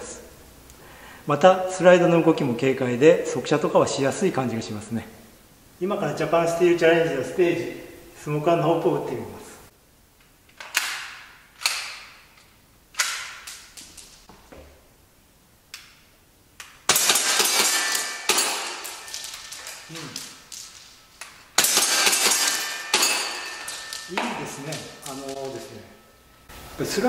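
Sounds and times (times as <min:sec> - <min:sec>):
pellets clinking on metal targets: 0:16.8 - 0:26.5
airsoft pistol shots: 0:16.9 - 0:20.6, 0:21.6 - 0:24.1.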